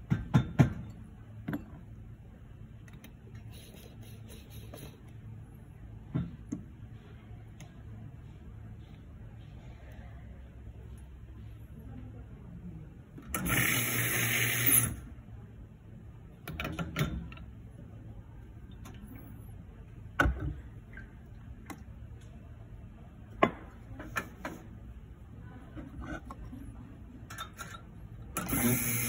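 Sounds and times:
espresso machine pump humming: 0:13.4 - 0:14.9, 0:28.4 - 0:29.0.

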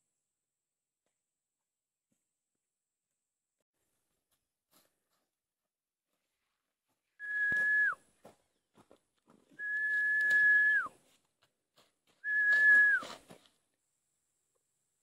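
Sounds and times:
whistled notes sliding down: 0:07.2 - 0:08.0, 0:09.6 - 0:10.9, 0:12.2 - 0:13.1.

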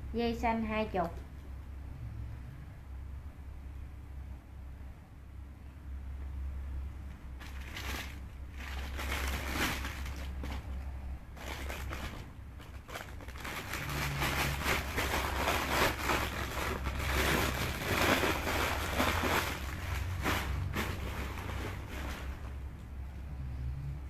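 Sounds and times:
steady low hum: 0:00.0 - 0:24.0
clothes rustling: 0:11.4 - 0:22.6.

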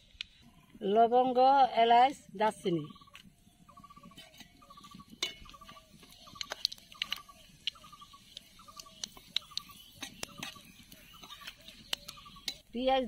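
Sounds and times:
spices crackling in hot oil: 0:02.9 - 0:13.0.

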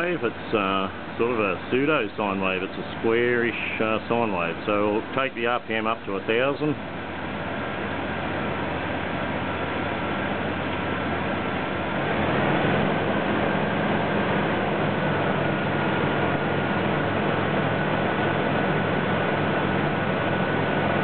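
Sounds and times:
engine running: 0:00.0 - 0:21.0
thin steady whine: 0:00.0 - 0:21.0.

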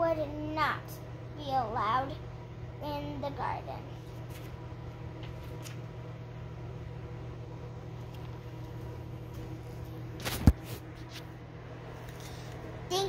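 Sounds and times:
low room hum: 0:00.0 - 0:13.0
book pages rustling: 0:04.0 - 0:05.8, 0:10.1 - 0:11.3, 0:12.0 - 0:12.7.

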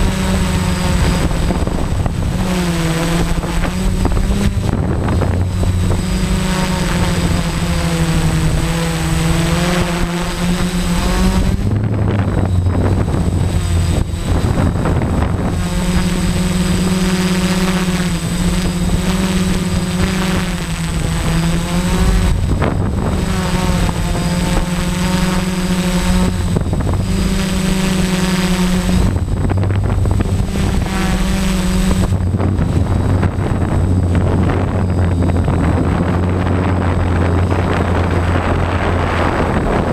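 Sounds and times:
drone motors and propellers droning: 0:00.0 - 0:39.9.

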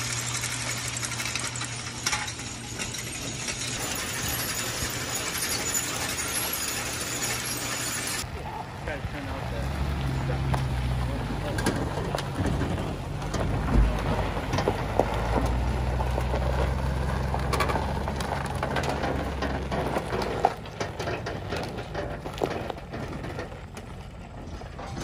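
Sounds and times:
truck engine idling: 0:00.0 - 0:25.0
footsteps on gravel: 0:21.5 - 0:25.0.

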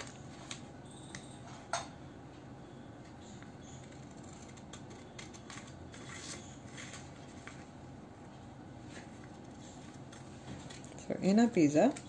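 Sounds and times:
scissors snipping paper: 0:03.6 - 0:07.1.

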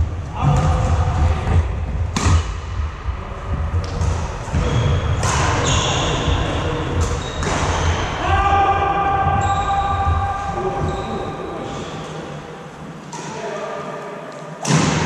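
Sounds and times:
sneakers squeaking on wooden floor: 0:04.4 - 0:08.3, 0:08.9 - 0:12.2.

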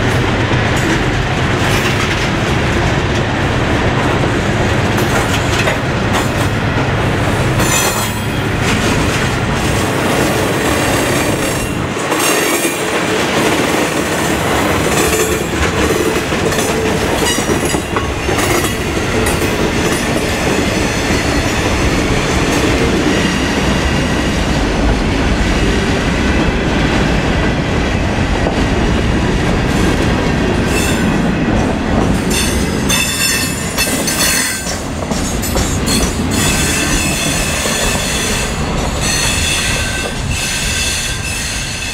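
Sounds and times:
train wheels clicking over rail joints: 0:04.8 - 0:06.6, 0:07.4 - 0:25.6, 0:28.4 - 0:41.9.

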